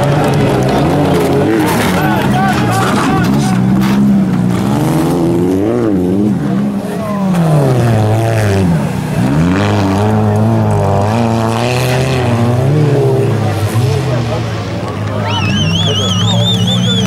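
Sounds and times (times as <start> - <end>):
racing car engines revving: 0.0 - 17.0.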